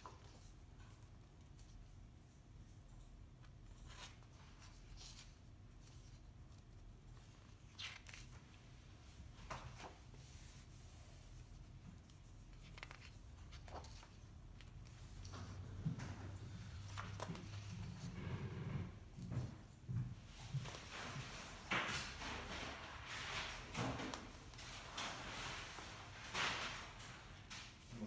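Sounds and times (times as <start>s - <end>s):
book pages rustling: 3.2s - 18.3s.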